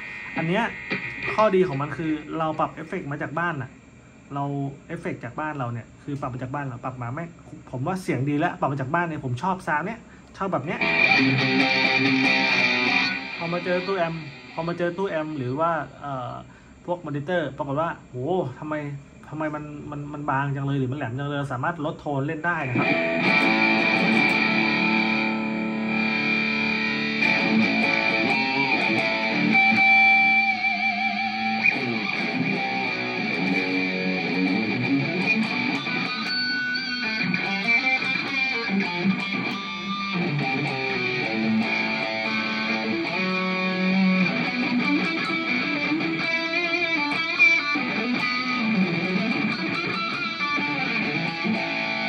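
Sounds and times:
electric guitar lead line: 0:00.0 - 0:03.6, 0:10.6 - 0:16.2, 0:22.6 - 0:52.0
steady high-pitched whine: 0:00.0 - 0:52.0.

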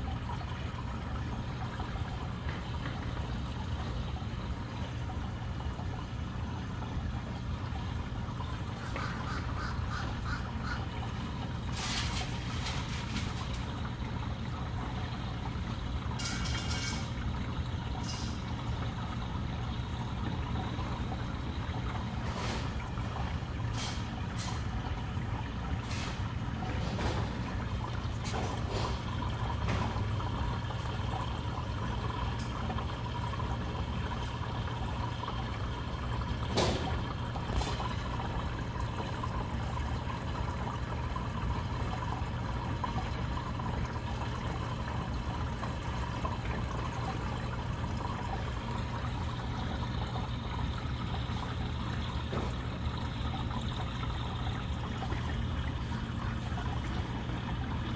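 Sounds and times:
low steady hum: 0:00.0 - 0:57.9
water trickling and splashing: 0:00.0 - 0:57.9.

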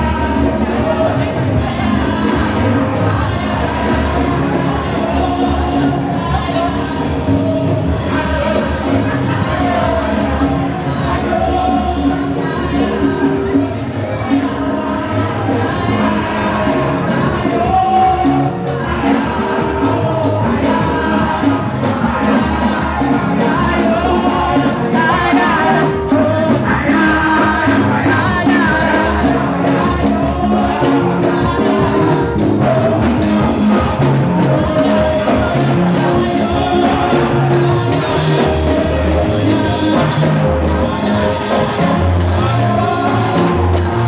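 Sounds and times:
group singing gospel praise: 0:00.0 - 0:44.0.

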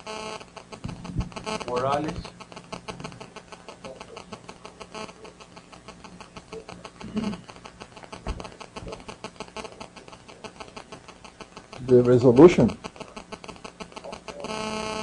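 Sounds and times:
rapid steady crackling: 0:00.0 - 0:15.0.

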